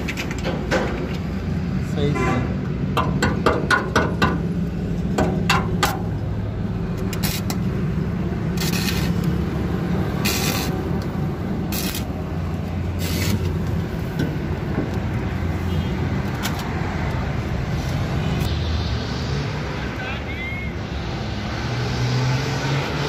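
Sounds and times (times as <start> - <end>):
sharp metallic knocks: 2.9 - 4.5, 5.1 - 6.1.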